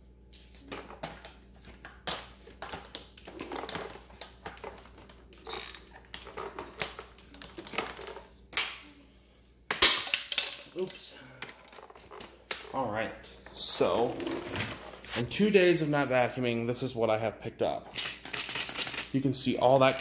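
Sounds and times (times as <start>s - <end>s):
plastic vacuum parts handled: 2.0s - 8.3s.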